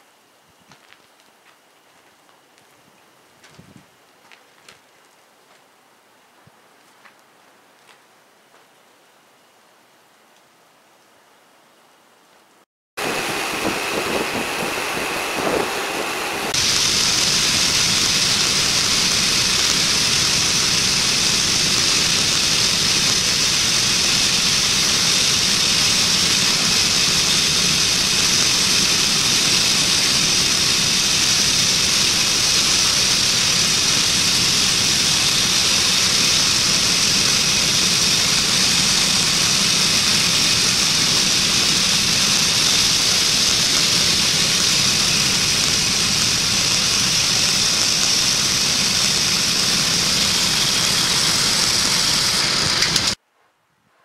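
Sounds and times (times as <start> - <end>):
bandsaw mill cutting log: 13.0 - 53.2.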